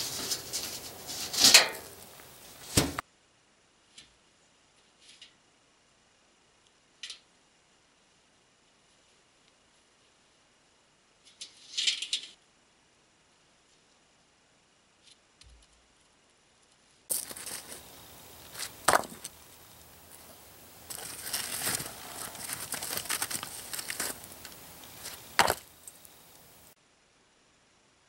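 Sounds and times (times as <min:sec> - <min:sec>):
charcoal scraping and crunching: 0:00.0 - 0:03.0, 0:17.1 - 0:26.3
stone clacking on stone: 0:25.4 - 0:25.6.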